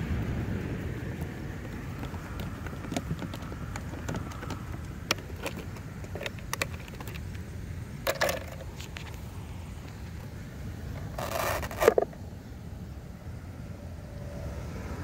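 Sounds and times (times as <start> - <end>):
wind rumble on microphone: 0.0 - 12.3
rustle: 0.0 - 15.0
hands handling boat hull clicks: 1.7 - 7.4, 8.1 - 9.2.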